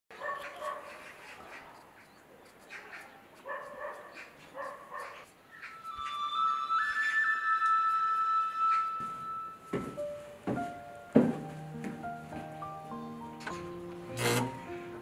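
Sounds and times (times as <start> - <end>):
dog barking: 0.1 - 1.7, 2.8 - 5.3
flute-like music tones: 5.5 - 10.3.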